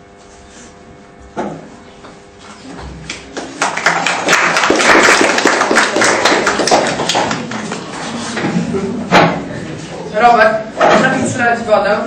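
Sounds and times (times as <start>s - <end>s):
audience applauding: 3.3s - 8.0s.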